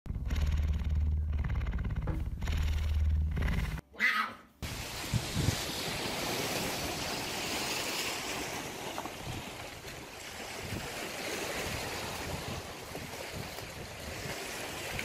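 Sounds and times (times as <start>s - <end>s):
wind buffeting microphone: 4.6s - 7.2s, 9.0s - 15.0s
surf washing onto shingle: 4.6s - 15.0s.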